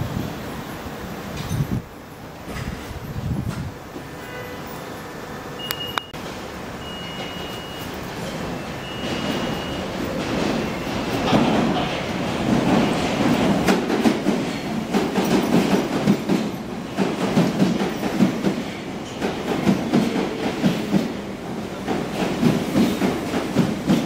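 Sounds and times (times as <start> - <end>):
train wheels clattering over rail joints: 9.1 - 24.0.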